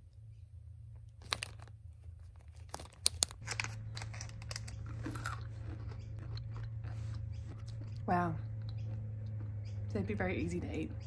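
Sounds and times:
foil snack pouch crinkling: 1.2 - 6.4.

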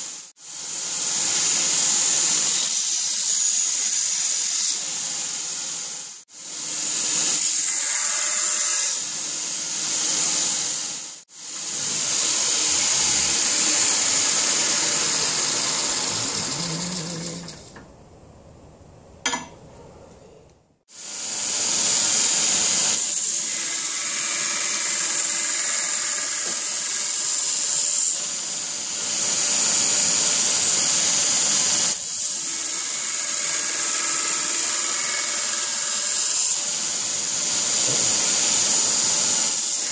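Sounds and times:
belt grinder grinding steel: 11.6 - 17.8.

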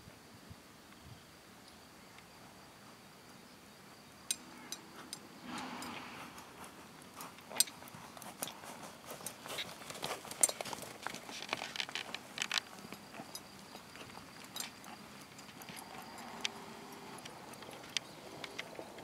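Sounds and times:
short rushing noise: 5.4 - 6.6.

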